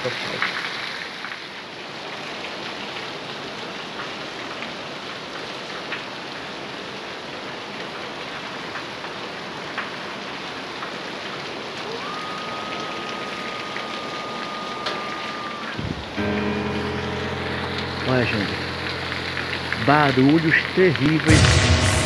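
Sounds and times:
heavy rain: 0.0s - 22.0s
steady high tone: 12.0s - 22.0s.

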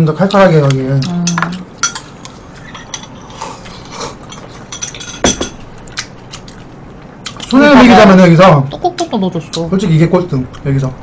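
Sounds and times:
utensils clinking against bowls: 0.2s - 5.6s.

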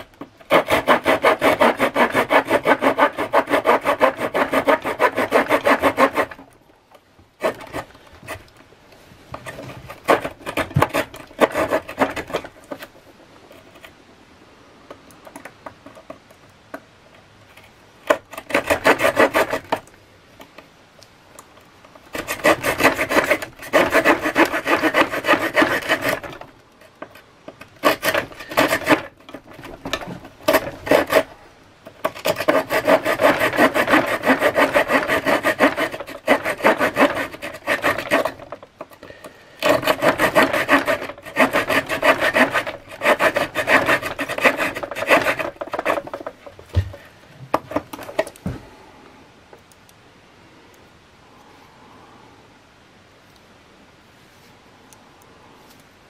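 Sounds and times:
small saw cutting wood: 0.4s - 6.6s, 7.4s - 8.5s, 9.4s - 12.9s, 18.1s - 19.9s, 22.0s - 47.0s.

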